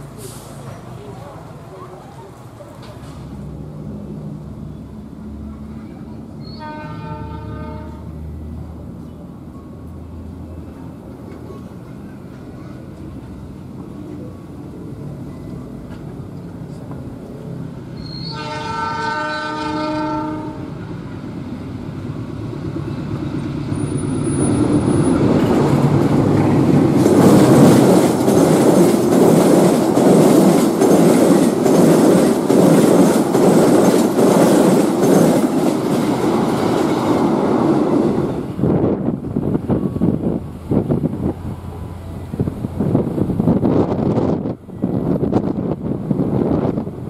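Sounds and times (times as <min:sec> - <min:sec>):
train passing with loud rush: 0:00.0 - 0:47.0
locomotive horn: 0:06.4 - 0:08.2, 0:18.0 - 0:20.8
wheels clacking over rail joints: 0:22.0 - 0:38.1.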